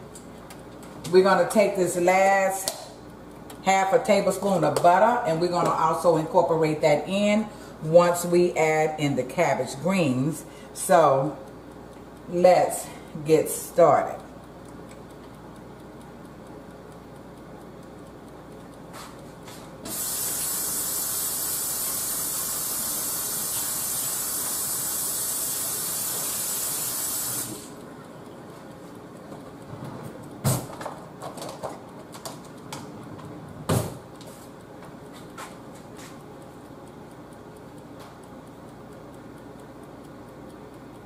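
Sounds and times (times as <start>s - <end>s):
steady hiss: 19.9s - 27.8s.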